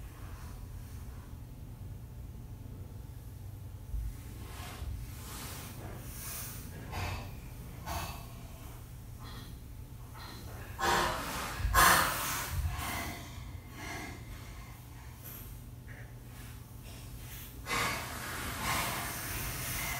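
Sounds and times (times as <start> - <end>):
low steady hum: 0.0 - 19.9
woman breathing heavily: 4.8 - 19.9
snorting gasps: 5.8 - 9.6, 10.2 - 15.4, 17.3 - 19.9.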